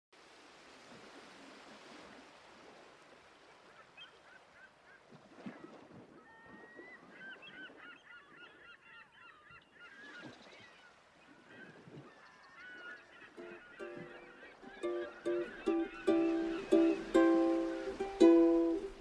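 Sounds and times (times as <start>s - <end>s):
flock of birds calling: 11.5s - 18.0s.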